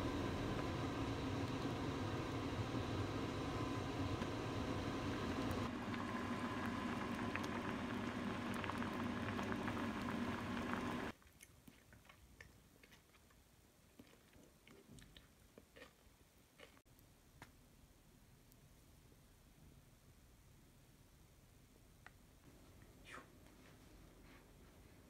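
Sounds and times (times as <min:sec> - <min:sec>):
pot of soup boiling: 0:00.0 - 0:11.2
crunching and chewing: 0:11.1 - 0:16.9.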